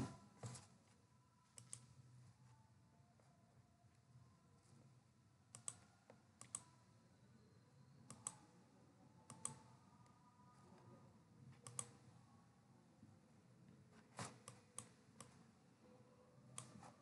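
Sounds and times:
computer mouse clicks: 0:01.6 - 0:01.9, 0:05.5 - 0:06.7, 0:08.1 - 0:08.4, 0:09.3 - 0:09.7, 0:11.6 - 0:12.0, 0:14.2 - 0:15.4, 0:16.6 - 0:16.8.

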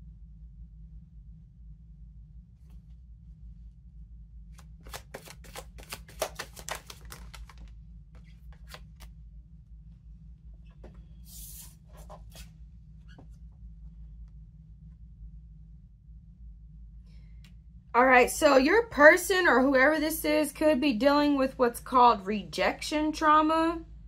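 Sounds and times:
steady low hum: 0:00.0 - 0:24.0
cards sliding: 0:04.6 - 0:09.1, 0:11.2 - 0:12.5
cards being shuffled: 0:04.6 - 0:09.2, 0:11.3 - 0:12.5.

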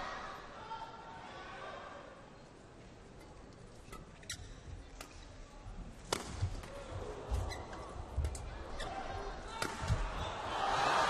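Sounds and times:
racket hitting shuttlecock: 0:06.0 - 0:06.7, 0:09.5 - 0:10.0.

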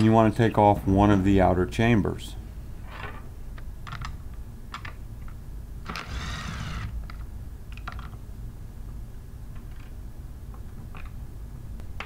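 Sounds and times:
impact gun running: 0:05.9 - 0:07.0.

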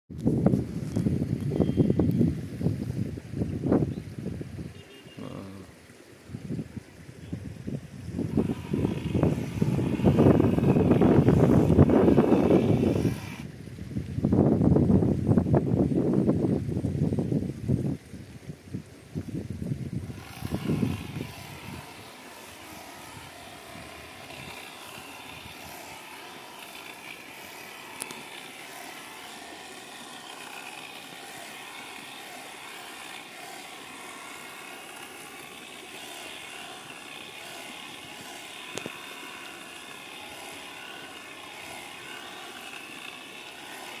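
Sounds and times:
drone propellers humming: 0:08.2 - 0:13.4, 0:20.0 - 0:44.0.

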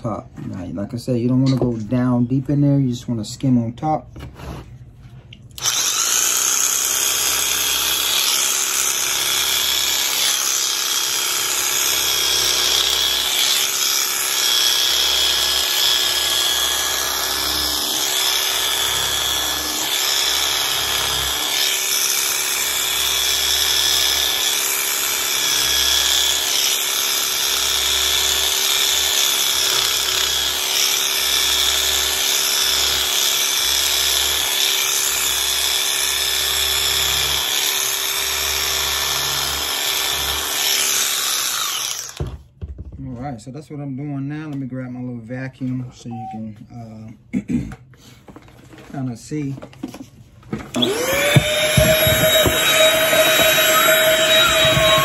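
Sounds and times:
rug shaver whining: 0:05.5 - 0:31.1, 0:50.6 - 0:55.0.

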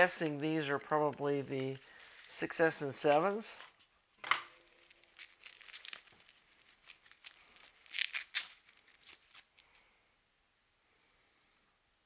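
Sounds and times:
paper and cardboard crinkling: 0:00.0 - 0:03.8, 0:04.5 - 0:09.8.

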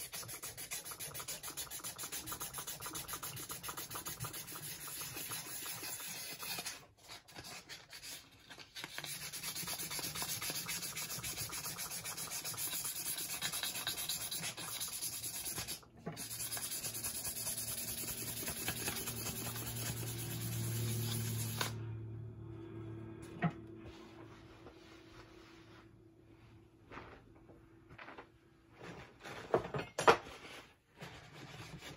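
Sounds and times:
sandpaper rasping on steel: 0:00.0 - 0:06.8, 0:07.4 - 0:21.8.

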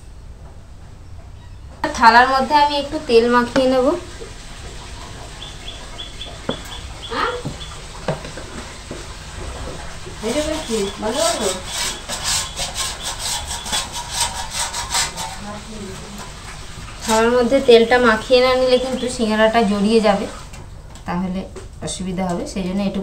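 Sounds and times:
hand rubbing oil on steel plate: 0:05.3 - 0:15.7.

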